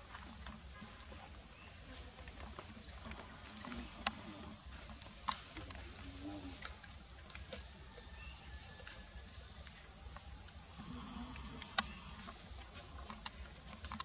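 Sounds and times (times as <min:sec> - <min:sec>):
high-pitched animal squeaks: 0:08.1 - 0:08.9, 0:11.7 - 0:12.5
faint ticks: 0:08.7 - 0:14.0.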